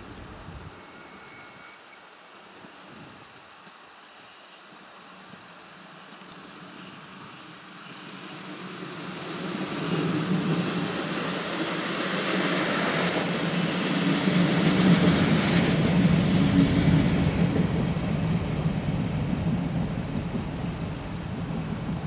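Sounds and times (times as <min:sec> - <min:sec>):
train rumbling on tracks: 0:06.6 - 0:22.0.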